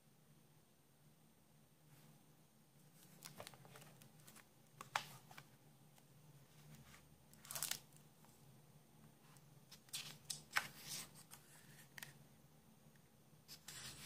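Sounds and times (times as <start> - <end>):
book cover rustle: 2.9 - 5.5, 6.5 - 8.0, 9.7 - 12.2.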